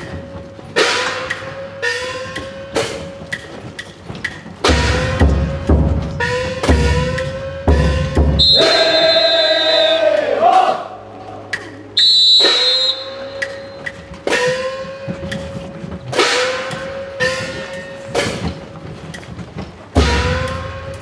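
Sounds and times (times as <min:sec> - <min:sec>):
shrill whistle blast: 0:08.4 - 0:10.1, 0:12.0 - 0:13.9.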